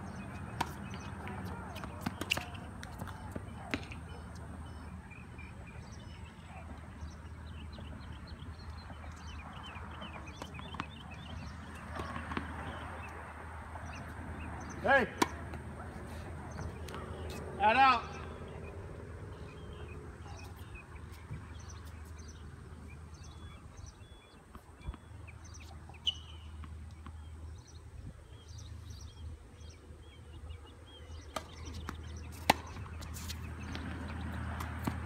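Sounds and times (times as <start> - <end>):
small birds chirping: 0.0 - 35.0
tennis ball knocks: 15.0 - 15.7, 31.3 - 32.9.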